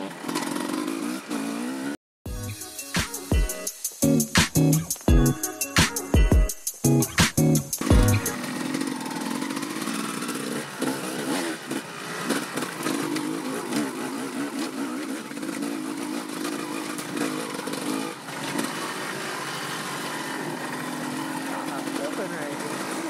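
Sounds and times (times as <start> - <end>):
dirt bike engine revving: 0.0 - 2.0, 7.1 - 23.0.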